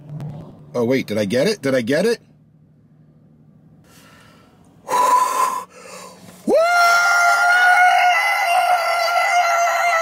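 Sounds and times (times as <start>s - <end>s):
man whooping scream of joy: 6.5s - 10.0s
man yelling excitedly: 6.5s - 10.0s.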